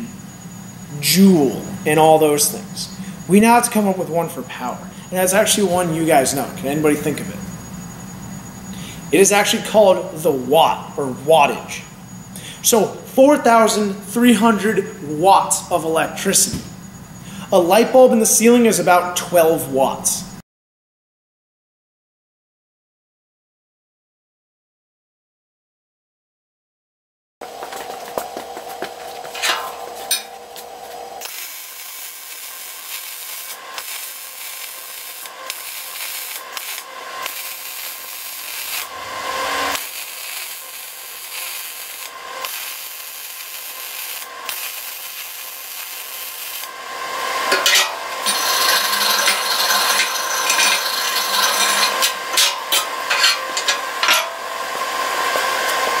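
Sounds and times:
welding arc crackling: 0:27.4 - 0:56.0.

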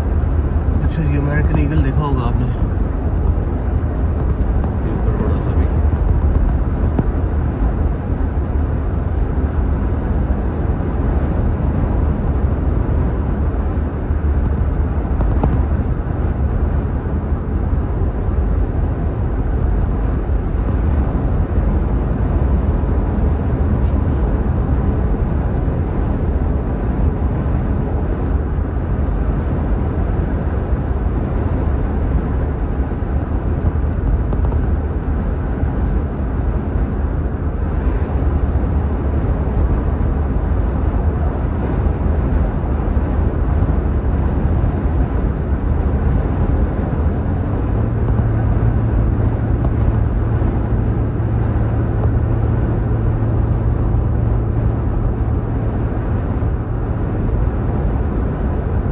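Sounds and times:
car engine and tyre drone: 0:00.0 - 0:58.9
higher hum: 0:40.8 - 0:58.9.

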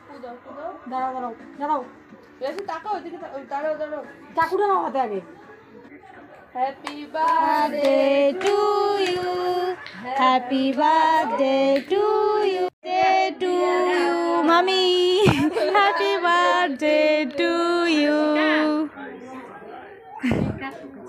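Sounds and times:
women and child singing: 0:06.6 - 0:18.9.

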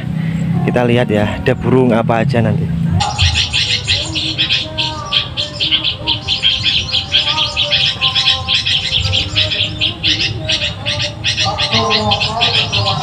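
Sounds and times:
recorded bird twittering: 0:02.9 - 0:13.0.

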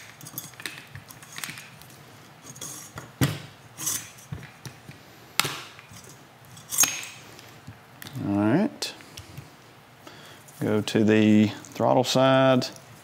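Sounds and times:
wires clicking and rustling: 0:00.0 - 0:08.3.

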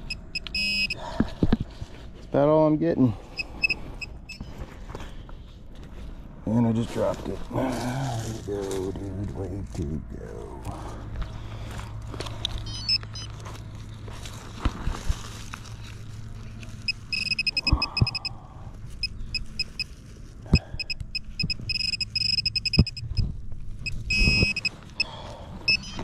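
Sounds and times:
pinpointer short high beeps: 0:00.0 - 0:01.0, 0:03.4 - 0:04.5, 0:12.6 - 0:13.3, 0:16.9 - 0:18.3, 0:20.7 - 0:23.2, 0:23.8 - 0:25.1, 0:25.7 - 0:26.0.

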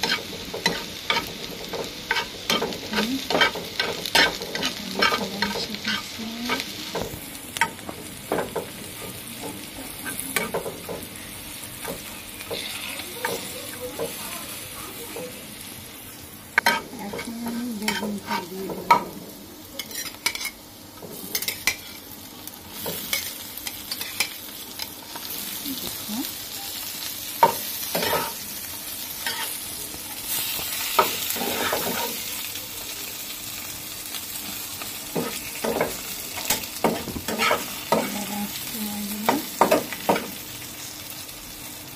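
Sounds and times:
food sizzling in frying pan: 0:00.0 - 0:41.9
metal spatula scraping pan: 0:27.9 - 0:28.4.

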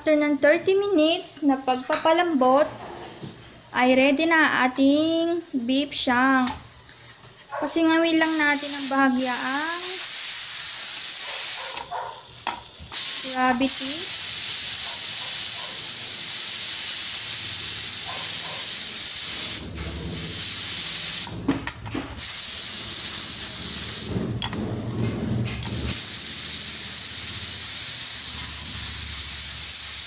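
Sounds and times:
pressure cooker venting steam: 0:03.2 - 0:30.0.

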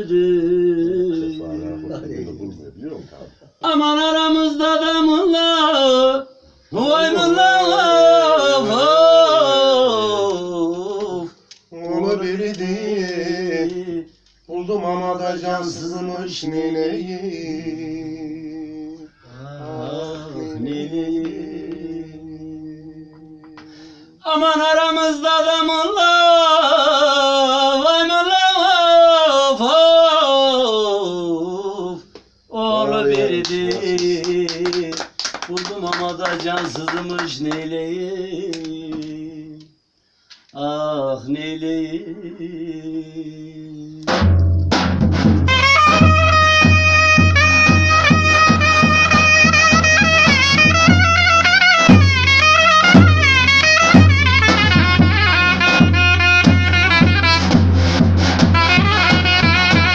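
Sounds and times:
man singing: 0:00.0 - 0:02.3, 0:03.5 - 0:39.8, 0:40.5 - 0:44.2
drum strokes: 0:44.1 - 0:59.9.

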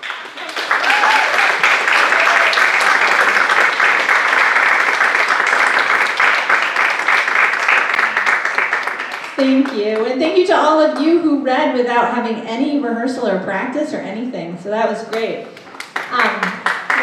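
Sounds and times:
audience applauding: 0:00.0 - 0:10.0, 0:15.6 - 0:17.0.

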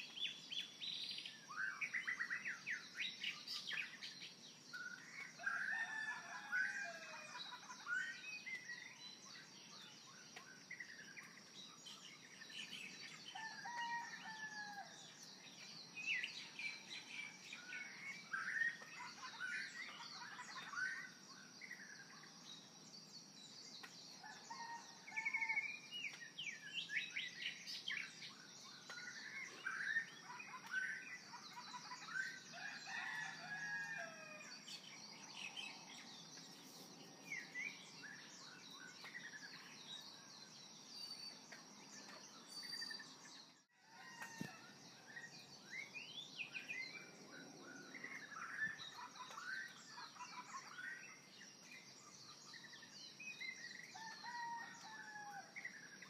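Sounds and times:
birds chirping and singing: 0:00.0 - 0:56.0.

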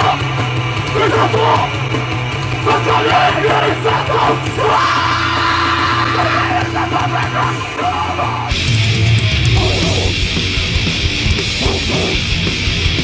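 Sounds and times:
bass guitar: 0:00.0 - 0:13.0
distorted guitars: 0:00.0 - 0:13.0
drums: 0:00.0 - 0:13.0
person screaming vocals: 0:03.9 - 0:08.5, 0:09.6 - 0:10.2, 0:11.6 - 0:12.2.

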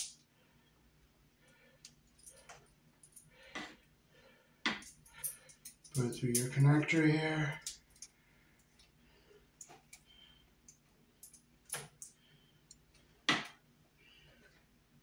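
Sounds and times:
metallic clicks and rattles of cable: 0:00.0 - 0:00.3, 0:01.8 - 0:03.9, 0:04.7 - 0:09.0, 0:09.6 - 0:13.6.

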